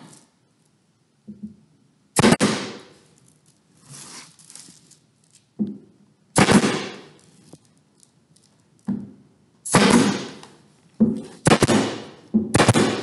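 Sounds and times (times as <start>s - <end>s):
nail gun firing: 2.2s - 2.9s, 6.4s - 7.1s, 9.7s - 10.6s, 11.4s - 13.0s.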